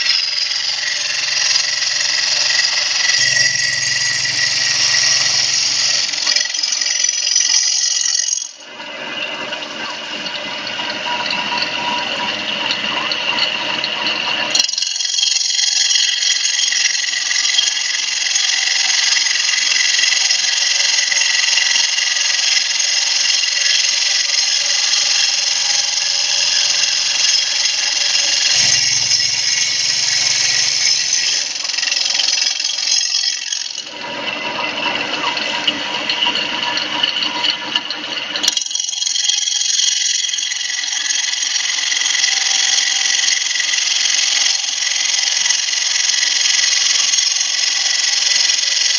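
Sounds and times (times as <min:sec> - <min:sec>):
saw blade grinding stone: 0:00.0 - 0:08.7, 0:12.7 - 0:34.0.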